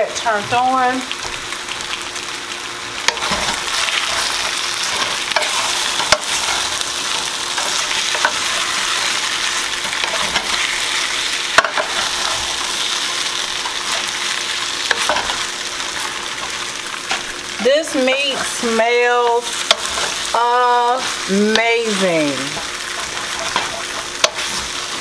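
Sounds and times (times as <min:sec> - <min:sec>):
meat sizzling in skillet: 0:00.0 - 0:25.0
wooden spoon scraping pan: 0:22.6 - 0:25.0.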